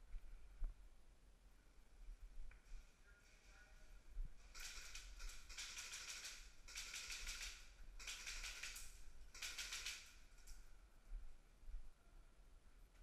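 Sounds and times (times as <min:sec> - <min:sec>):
airsoft guns firing bursts: 0:04.5 - 0:10.2.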